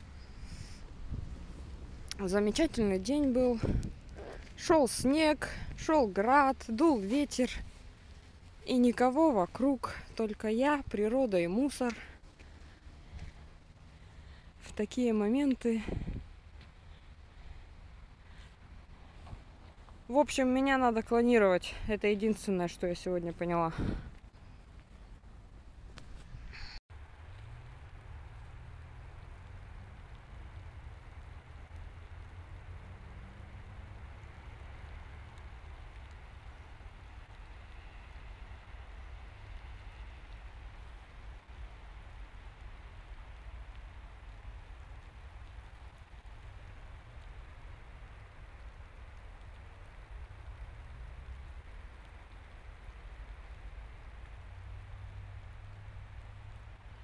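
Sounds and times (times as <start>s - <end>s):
low rumble: 0.0s - 10.2s
wind rumbling on microphone: 0.0s - 22.4s, 23.4s - 57.0s
steady outdoor hiss: 0.0s - 57.0s.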